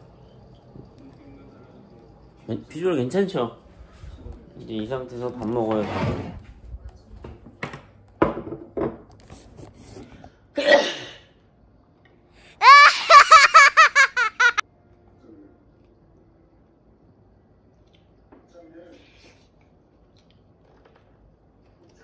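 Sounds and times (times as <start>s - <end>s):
high-pitched laughter: 12.6s - 14.6s.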